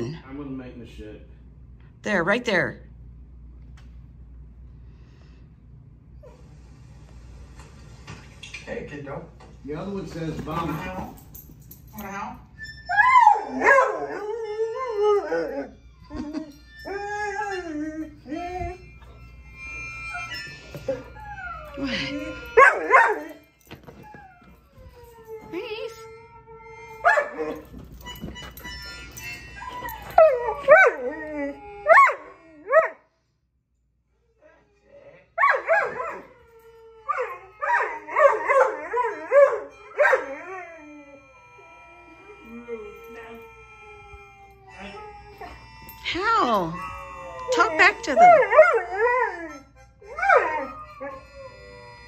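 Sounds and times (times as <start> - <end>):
dog howling: 12.0 - 27.7, 29.5 - 33.0, 34.5 - 52.0.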